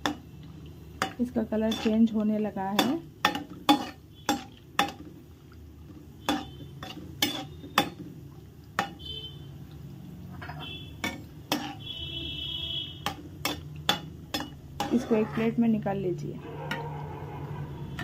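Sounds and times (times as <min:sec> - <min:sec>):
ladle knocking and scraping pan: 0:01.0 - 0:05.0, 0:06.2 - 0:08.0, 0:10.4 - 0:11.8, 0:13.0 - 0:15.6.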